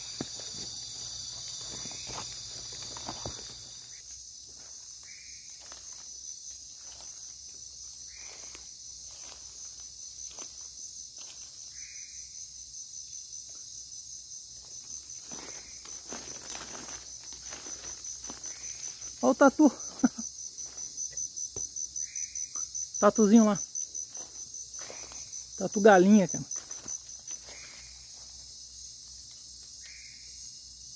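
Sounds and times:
footsteps through undergrowth: 0.0s - 12.0s, 14.4s - 21.6s, 23.4s - 28.8s
insects trilling: 0.0s - 30.9s.

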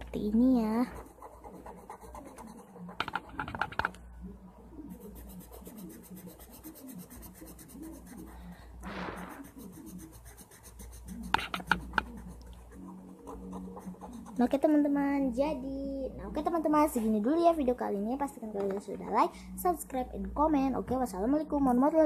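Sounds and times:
marker scratching on paper: 0.6s - 4.0s, 4.9s - 15.0s.

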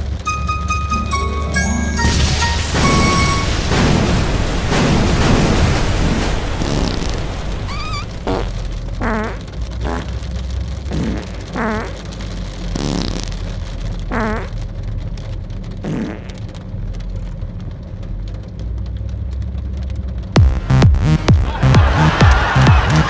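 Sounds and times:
car driving on wet road: 0.0s - 0.8s, 2.0s - 23.0s
wiper blades squealing on glass: 7.7s - 8.1s.

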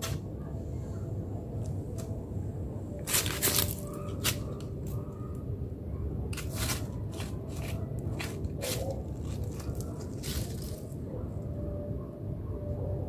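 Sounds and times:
steady low rumble: 0.0s - 13.0s
paws scraping on dry leaves: 3.1s - 4.6s, 6.4s - 11.0s.

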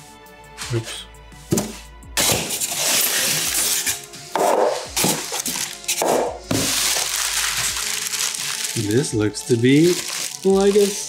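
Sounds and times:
foam packing scraping cardboard: 2.2s - 4.0s.

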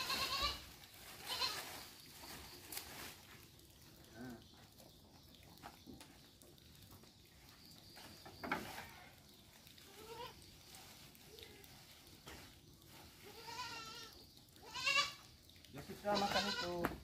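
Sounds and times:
goats bleating: 0.0s - 1.7s, 13.2s - 15.3s, 16.0s - 16.8s.

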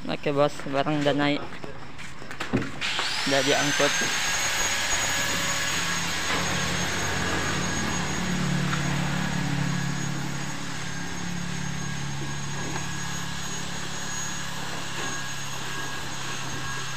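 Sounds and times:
truck engine pulling away: 5.7s - 16.3s.

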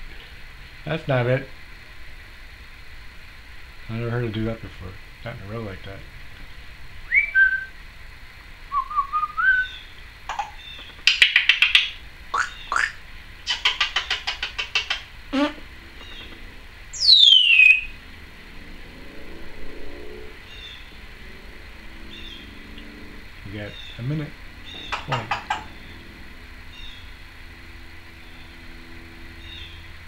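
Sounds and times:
parrot whistling: 7.1s - 7.7s, 8.7s - 15.6s, 16.9s - 18.0s.

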